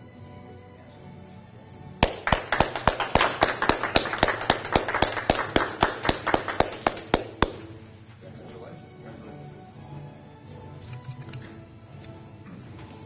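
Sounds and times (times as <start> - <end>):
hand clapping: 2.0 - 7.9.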